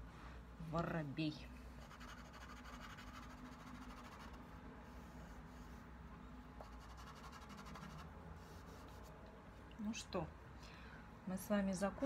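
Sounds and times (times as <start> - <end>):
pastel scratching on paper: 1.8 - 5.9, 6.6 - 9.1.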